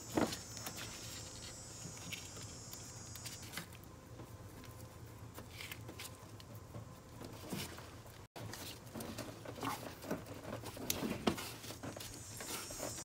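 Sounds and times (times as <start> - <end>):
faint scraping and rubbing: 7.2 - 13.0.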